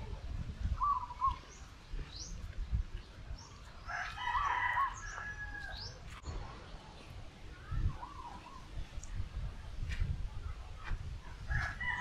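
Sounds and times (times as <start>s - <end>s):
small birds chirping: 0.1s - 12.0s
rooster crowing: 3.9s - 5.8s.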